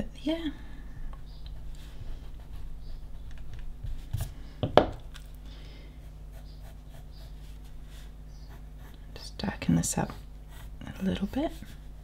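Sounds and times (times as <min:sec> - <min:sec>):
low steady hum: 0:00.0 - 0:12.0
pencil scratching on paper: 0:06.3 - 0:09.2, 0:10.0 - 0:12.0.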